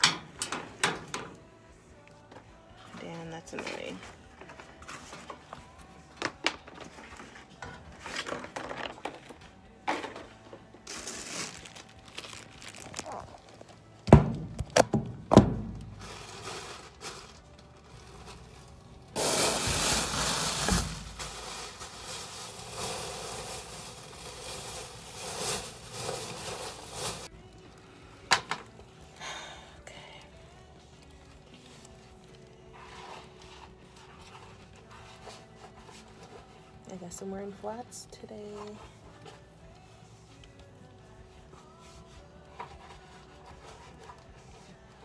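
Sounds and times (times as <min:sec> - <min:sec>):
rustling and crinkling: 0:02.8 - 0:14.9, 0:15.6 - 0:27.9
knocks on metal locker: 0:14.1 - 0:15.8.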